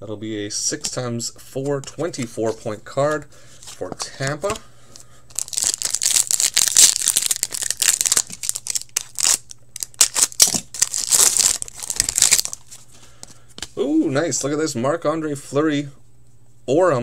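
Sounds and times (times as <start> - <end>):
plastic wrapper crinkling: 5.3 - 12.8.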